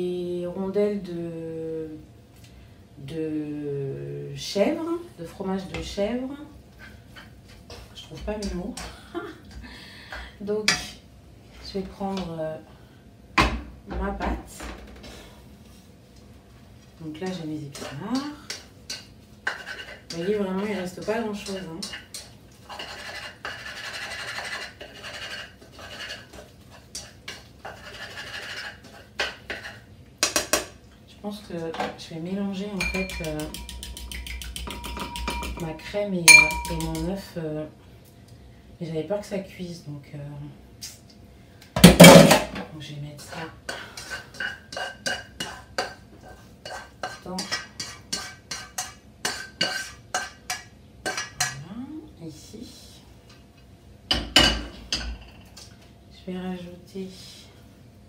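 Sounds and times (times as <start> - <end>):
utensil scraping a wok: 6.7 - 9.0, 17.2 - 30.7, 32.8 - 35.7, 43.2 - 51.6
utensil knocking on wok: 32.8 - 35.7, 36.3 - 37.1.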